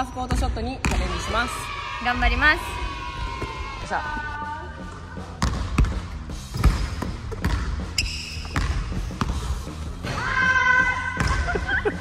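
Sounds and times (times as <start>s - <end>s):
basketball bouncing on hardwood: 5.4s - 7.8s, 8.4s - 9.4s.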